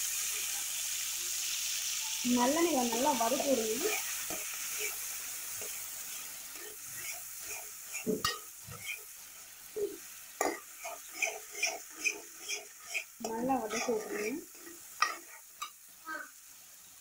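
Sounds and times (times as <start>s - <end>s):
paste sizzling in hot oil: 0.0s - 17.0s
steel spoon scraping metal pan: 2.9s - 5.8s, 6.5s - 9.0s, 10.4s - 15.7s.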